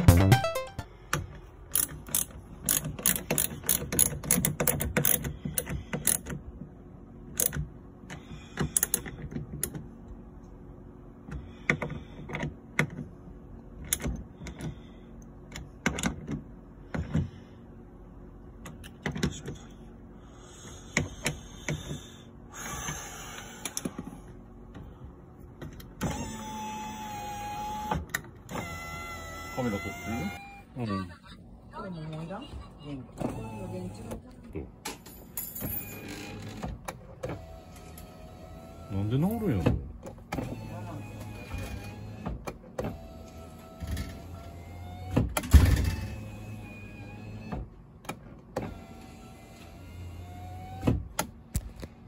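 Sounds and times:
mechanical clicks and knocks: 0:00.0 - 0:06.4
power window motor whirring: 0:25.8 - 0:30.6, 0:33.2 - 0:34.3, 0:35.8 - 0:51.4.

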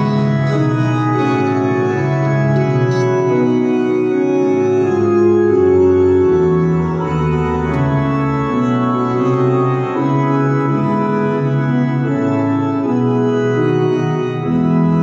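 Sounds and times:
organ playing a hymn: 0:00.0 - 0:15.0.

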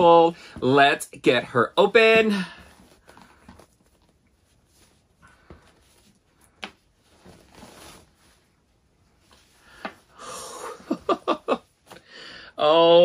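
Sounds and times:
fabric bag rustling: 0:02.1 - 0:09.8.

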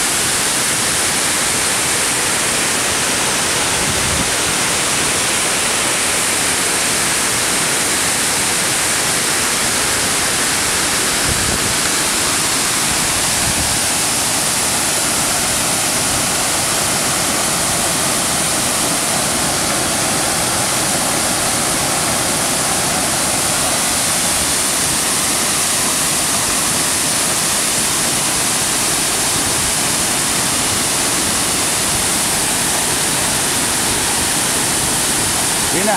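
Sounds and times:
waterfall rushing: 0:00.0 - 0:35.9.

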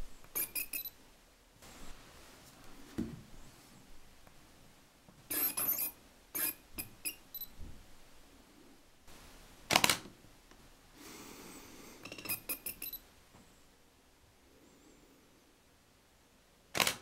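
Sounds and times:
high-pitched focus motor bursts: 0:05.3 - 0:05.8.

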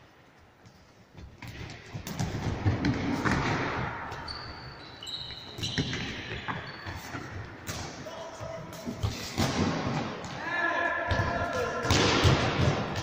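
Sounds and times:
short high squeaks: 0:04.3 - 0:07.2.

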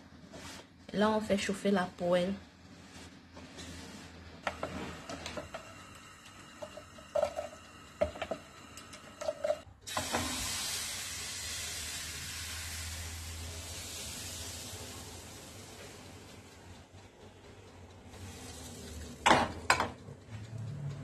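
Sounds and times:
batter sizzling in frying pan: 0:09.9 - 0:16.2, 0:18.2 - 0:19.3.

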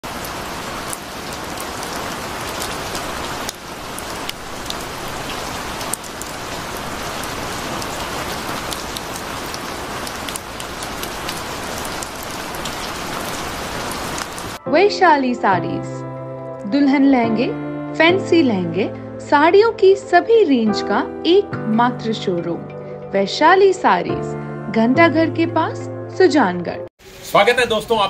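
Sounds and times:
heavy rain on pavement: 0:00.0 - 0:14.6.

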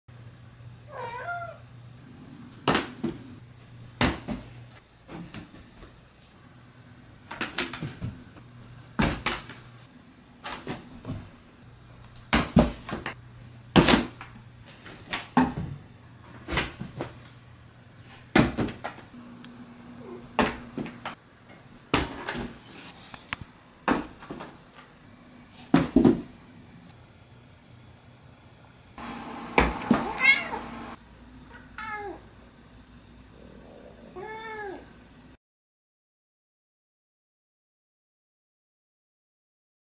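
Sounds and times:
cat meowing: 0:00.9 - 0:01.6, 0:30.0 - 0:30.9, 0:31.5 - 0:32.2, 0:34.1 - 0:34.9.

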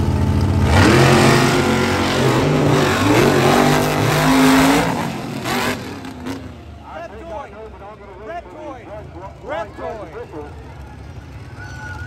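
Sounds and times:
monster truck engine revving: 0:00.0 - 0:06.8.

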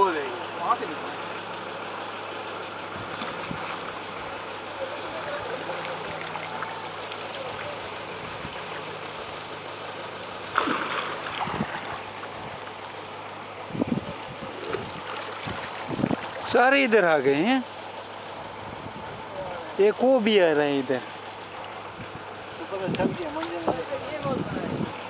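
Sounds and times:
low steady hum: 0:00.0 - 0:25.0
faint distant voices: 0:04.0 - 0:09.6.

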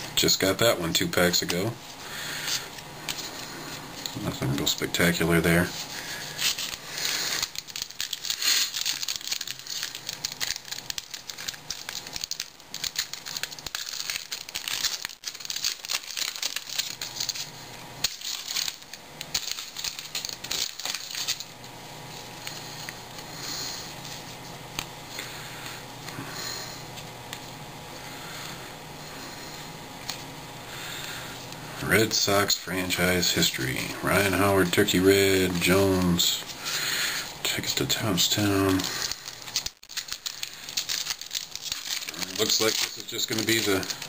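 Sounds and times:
cards rustling: 0:00.3 - 0:27.6, 0:29.2 - 0:44.0
foil wrapper crinkling and tearing: 0:00.9 - 0:21.6, 0:33.2 - 0:44.0.

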